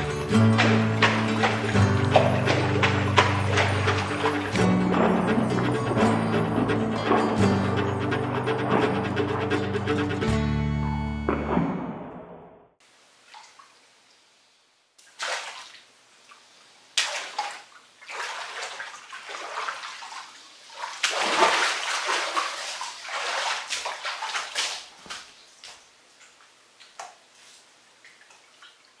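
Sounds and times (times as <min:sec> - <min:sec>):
bathtub water splashing: 0:00.0 - 0:09.6, 0:15.0 - 0:16.4, 0:17.0 - 0:27.2.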